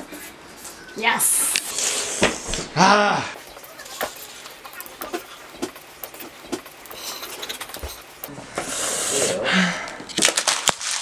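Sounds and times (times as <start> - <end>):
markers scribbling on paper: 3.4 - 8.9.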